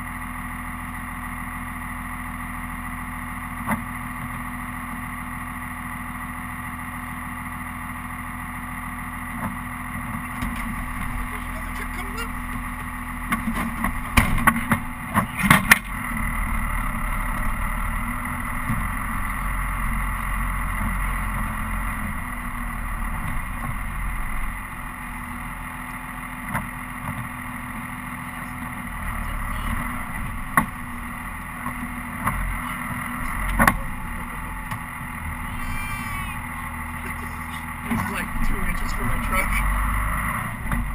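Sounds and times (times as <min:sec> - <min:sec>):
diesel truck engine droning: 0:00.0 - 0:40.9
sharp knocks and clatters: 0:13.3 - 0:15.9.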